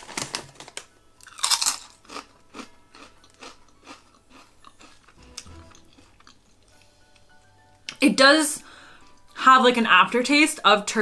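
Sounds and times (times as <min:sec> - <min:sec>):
crisps being crunched: 0:00.0 - 0:06.5.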